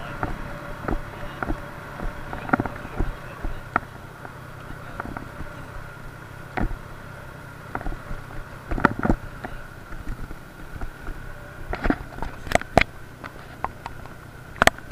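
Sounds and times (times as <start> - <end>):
moped engine running: 0.0 - 14.9
sharp knocks and rattles: 7.6 - 14.9.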